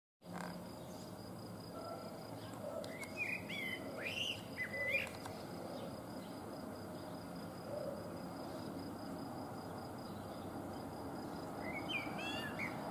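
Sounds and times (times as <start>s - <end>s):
blackbird singing: 2.4s - 6.4s, 11.6s - 12.9s.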